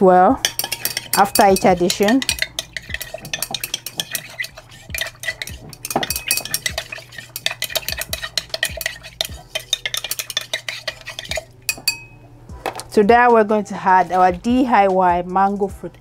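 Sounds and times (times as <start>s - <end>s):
stirrer clinking in glass beaker: 0.4s - 12.2s.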